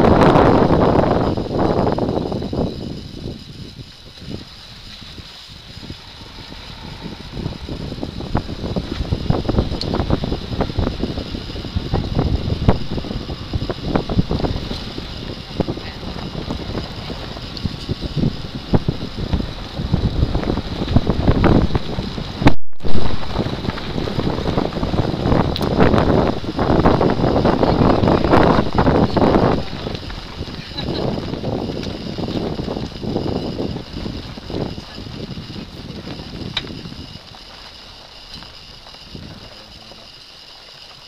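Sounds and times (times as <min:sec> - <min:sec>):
car rumble: 0:00.0 - 0:41.0
wind buffeting microphone: 0:00.0 - 0:41.0
knocks and clicks from rough ride: 0:27.6 - 0:40.0.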